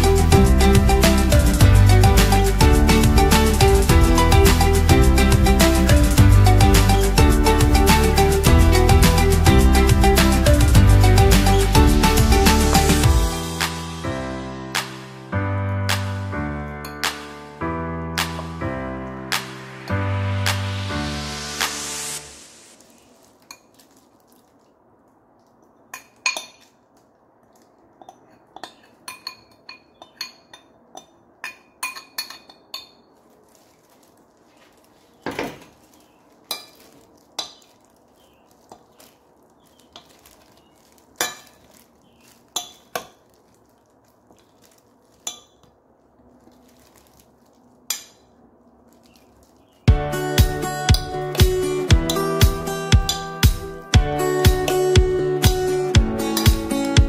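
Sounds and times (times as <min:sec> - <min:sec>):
metal spoon clinking on glass bowl: 0:25.9 - 0:26.7, 0:28.0 - 0:33.1, 0:42.6 - 0:43.1.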